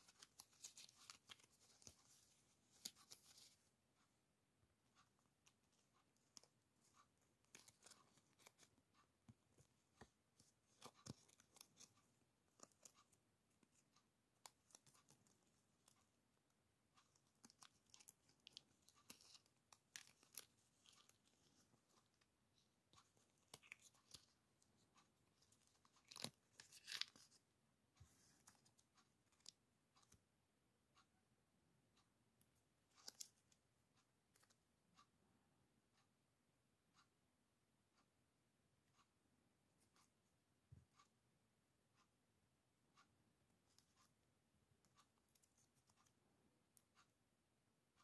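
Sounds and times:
stickers rustling and crinkling: 0.0 - 3.6, 17.0 - 22.3, 22.9 - 27.4.

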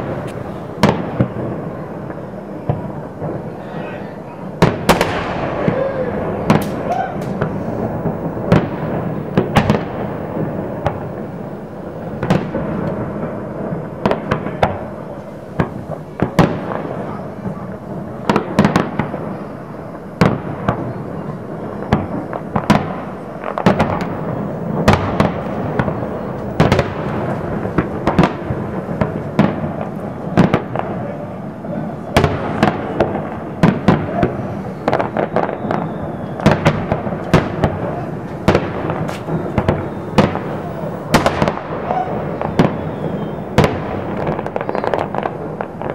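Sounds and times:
continuous din: 0.0 - 19.2
firework bangs: 0.0 - 45.9.

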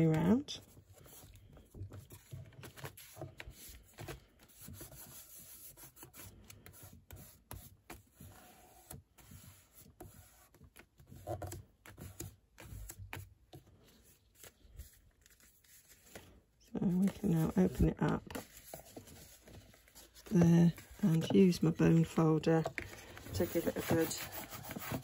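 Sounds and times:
paper rustling: 11.4 - 25.0
hands rubbing cardstock on table: 14.0 - 25.0.

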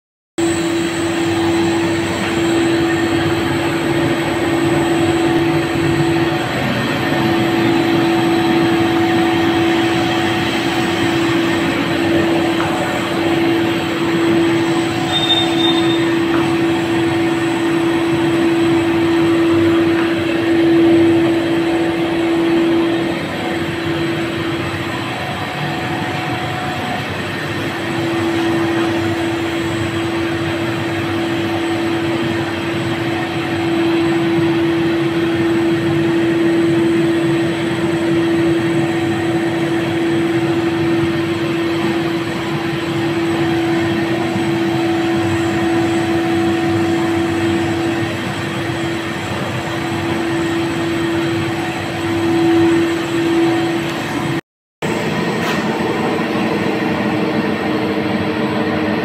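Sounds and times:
factory machinery drone: 0.4 - 59.0.

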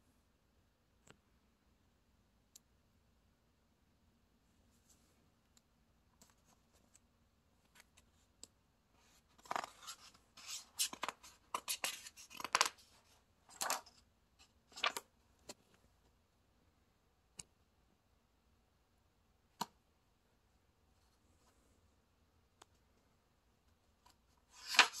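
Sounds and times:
paper page rustling: 9.4 - 12.9, 24.5 - 25.0.

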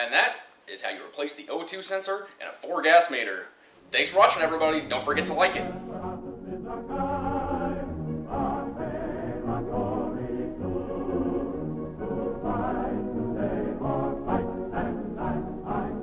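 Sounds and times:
orchestra accompaniment: 4.0 - 16.0
choir singing: 4.1 - 16.0.

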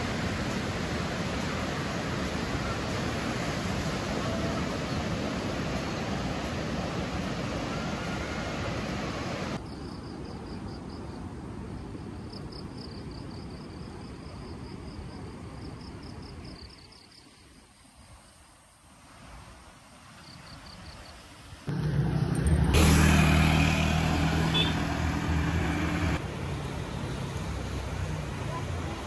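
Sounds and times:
ocean surf rushing: 0.0 - 9.6
insects chirping: 20.1 - 21.3.

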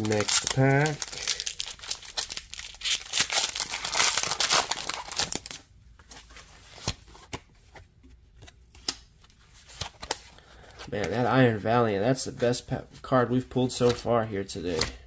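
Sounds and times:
foil wrapper tearing and crinkling: 0.0 - 5.6.

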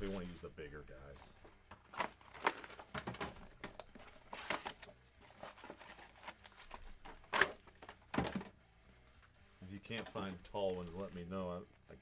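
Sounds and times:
foil packs rustling: 1.8 - 8.2, 9.0 - 12.0.

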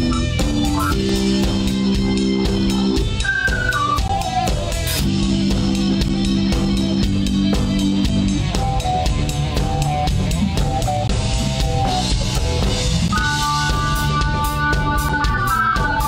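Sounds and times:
drum kit: 0.0 - 16.0
electric guitar: 0.0 - 16.0.

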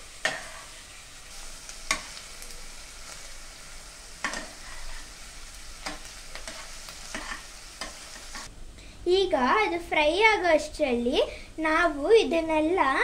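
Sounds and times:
onions sizzling in oil: 0.0 - 8.5
spoon scraping and knocking pan: 0.2 - 0.9, 1.8 - 2.2, 4.2 - 5.2, 5.8 - 8.5.

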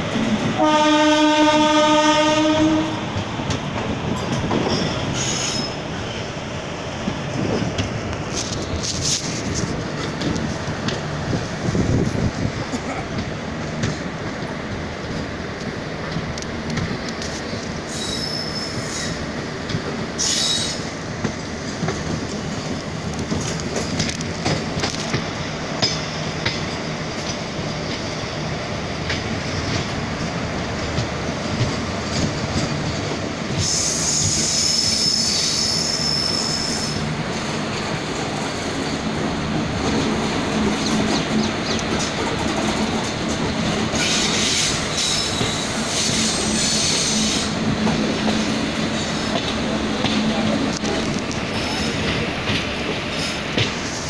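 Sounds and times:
train coaches rumbling on track: 0.0 - 54.0
shrill wheel squeal: 4.7 - 5.8, 17.9 - 19.2, 20.2 - 20.8, 33.6 - 37.0, 44.0 - 47.6.

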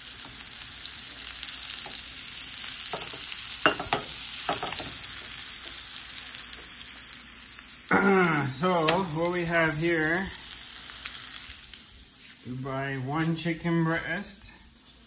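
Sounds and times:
chicken sizzling in hot oil: 0.0 - 15.0
pan knocking and scraping on grate: 2.9 - 5.0.

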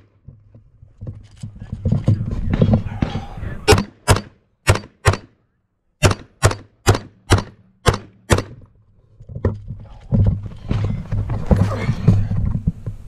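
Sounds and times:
rifle shots: 3.7 - 5.3, 6.0 - 8.6.

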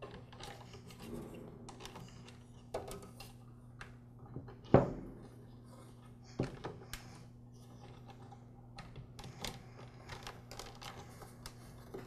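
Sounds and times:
steady low hum: 0.0 - 12.0
wires clicking into plastic tabs: 6.4 - 12.0.

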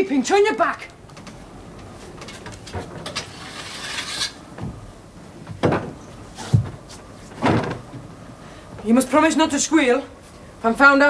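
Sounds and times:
rustling and scraping at cupboard: 1.8 - 4.8, 5.6 - 7.9
dull thumps: 5.4 - 8.1
cupboard door opening: 5.5 - 8.1.

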